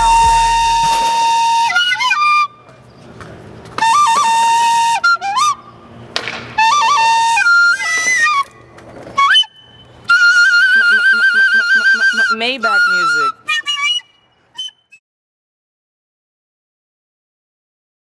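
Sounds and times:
deep bass music: 0.0 - 1.2
recorder playing: 0.0 - 2.5, 9.2 - 14.8.

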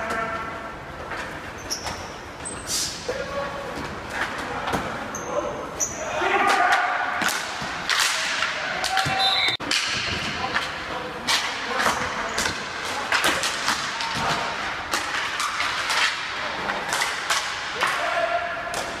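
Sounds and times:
hockey sticks clacking: 6.4 - 19.0.

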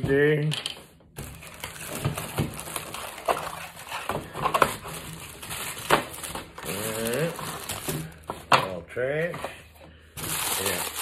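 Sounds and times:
cardboard and paper crinkling: 1.2 - 9.6, 10.2 - 11.0.

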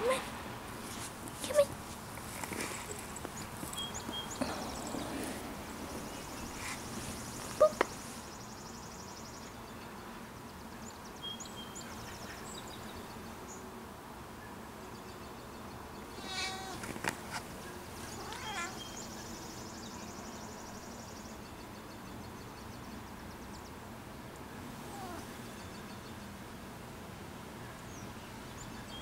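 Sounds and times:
short rising calls: 2.5 - 8.3
bird chirps and trills: 2.7 - 10.0, 17.6 - 22.8
cat meowing: 16.2 - 16.8, 18.2 - 18.8, 24.9 - 25.3.

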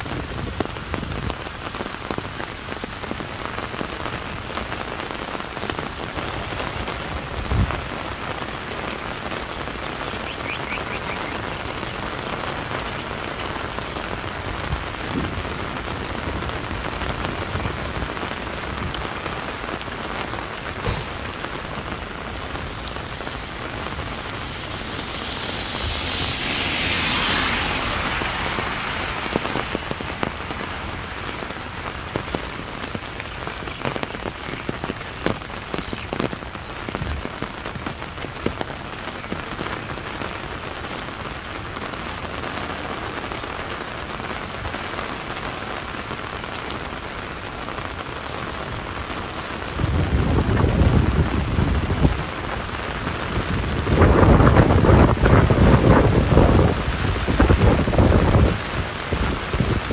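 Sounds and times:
steady rain falling: 0.0 - 59.9
rushing swell: 20.8 - 22.9
sharp drips or knocks: 20.8 - 23.7.

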